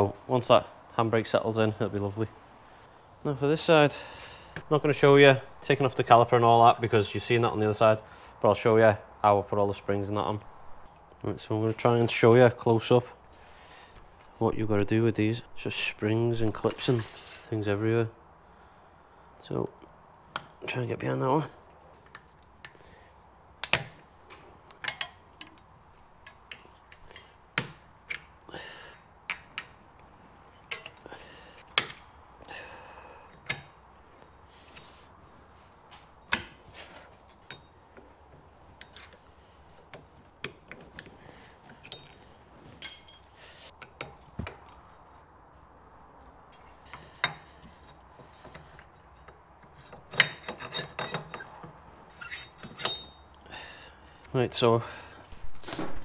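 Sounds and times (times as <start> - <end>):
hand tools scraping metal: 46.6 - 53.3.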